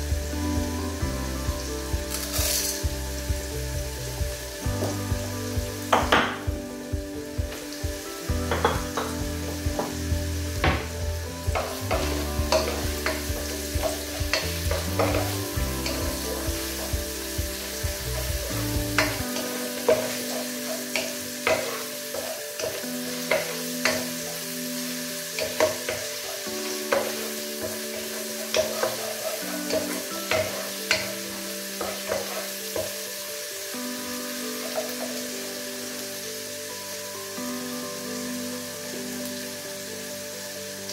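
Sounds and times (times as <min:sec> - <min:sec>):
vegetables sizzling in hot oil: 0:00.0 - 0:40.9
wooden spoon knocking pot: 0:08.5 - 0:09.2.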